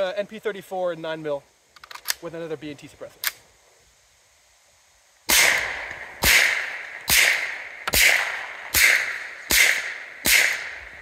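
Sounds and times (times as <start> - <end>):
suppressed pistol shots: 5.3 - 11.0.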